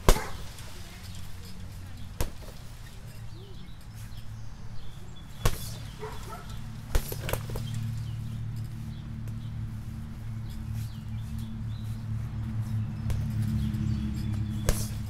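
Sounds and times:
punches on punching bag: 0.0s - 0.4s, 5.4s - 5.8s, 6.9s - 7.6s, 14.6s - 15.0s
low hum: 0.0s - 15.0s.

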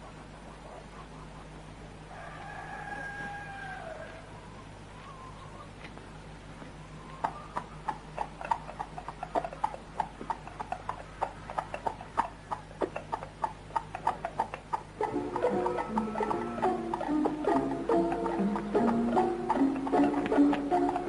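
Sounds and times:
steady low hum: 0.0s - 21.0s
horse hooves clip-clopping on dirt: 5.8s - 21.0s
music: 15.0s - 21.0s.

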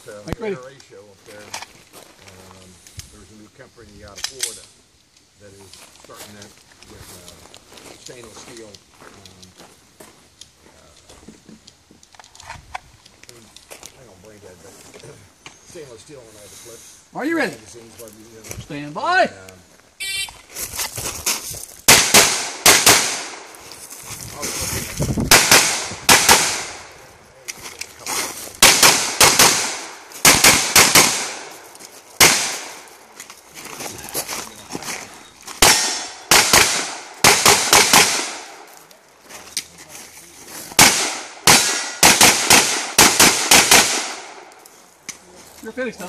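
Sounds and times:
pistol shots: 21.9s - 23.5s, 25.3s - 26.9s, 28.6s - 31.6s, 32.2s - 32.9s, 35.6s - 38.6s, 40.8s - 44.5s.

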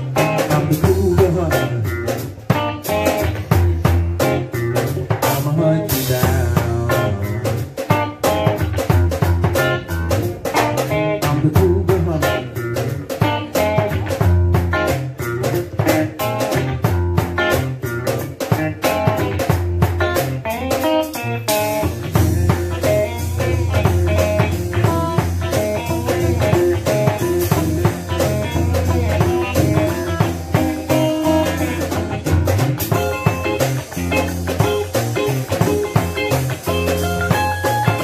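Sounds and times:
drum kit beat: 0.0s - 38.0s
electric guitar playing blues: 0.0s - 38.0s.

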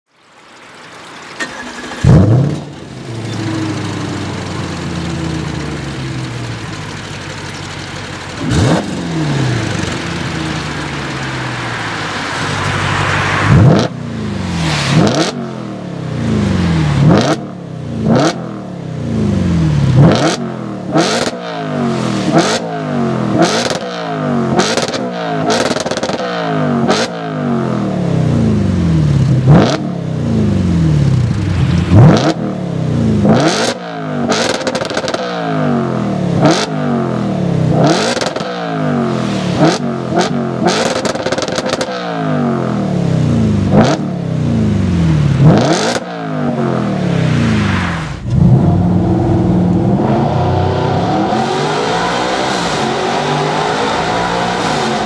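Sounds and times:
car engine idling: 0.1s - 13.2s, 30.3s - 32.1s, 46.7s - 51.6s
car engine revving: 0.3s - 55.0s.

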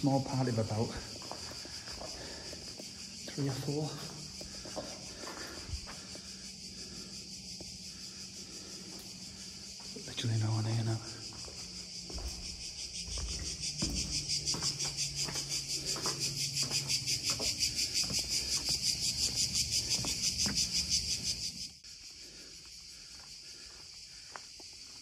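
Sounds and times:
cicadas pulsing chorus: 0.0s - 25.0s
faint footfalls: 0.7s - 3.0s, 3.6s - 6.3s, 11.1s - 21.1s.

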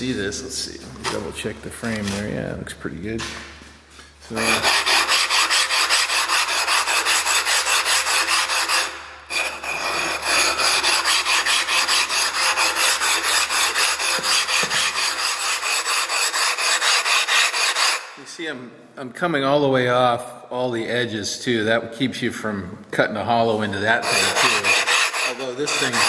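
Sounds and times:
stone scraping on flattening stone: 4.4s - 18.0s.

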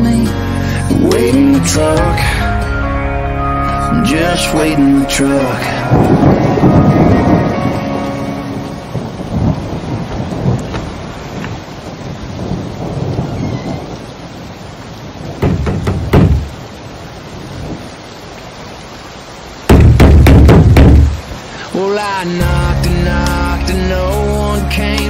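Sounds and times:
steady rain: 0.0s - 25.0s
thunder rolling: 4.2s - 14.4s
sharp thunderclap: 5.9s - 8.0s, 8.9s - 11.5s, 19.7s - 21.2s.

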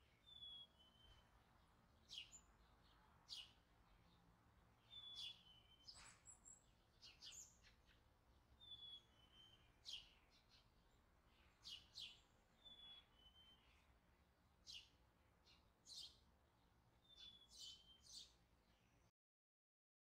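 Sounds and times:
faint bird chirps: 0.0s - 1.4s, 4.8s - 10.7s, 11.3s - 14.0s, 17.0s - 19.1s.

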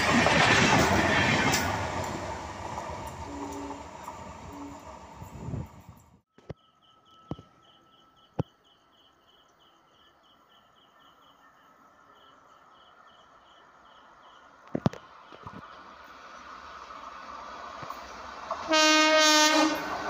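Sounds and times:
electric train approaching: 0.0s - 6.2s, 11.4s - 20.0s.

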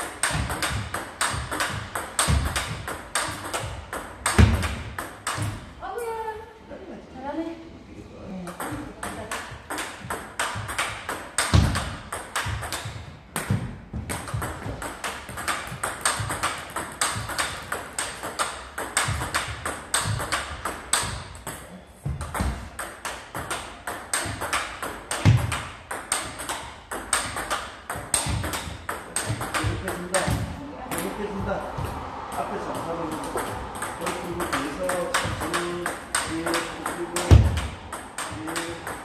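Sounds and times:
low thuds: 28.0s - 39.0s
ping pong ball clicks: 34.5s - 39.0s.

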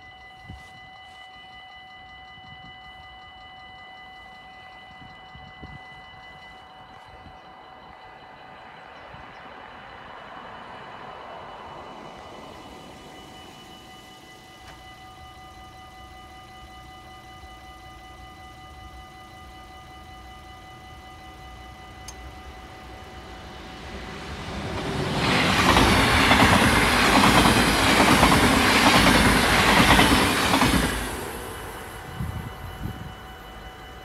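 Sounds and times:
level crossing bell ringing: 0.0s - 27.0s
train passing with rushing rumble: 2.1s - 34.0s.

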